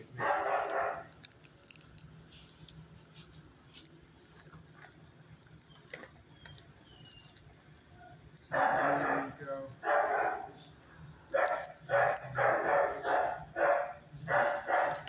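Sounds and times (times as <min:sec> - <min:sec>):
low steady hum: 0:00.0 - 0:15.0
faint ticks and clicks: 0:00.6 - 0:09.1, 0:10.8 - 0:12.5.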